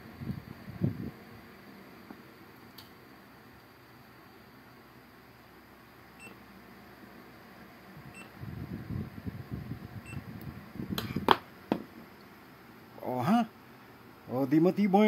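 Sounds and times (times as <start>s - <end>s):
spot welder beeps: 6.2s - 6.4s, 8.1s - 8.3s.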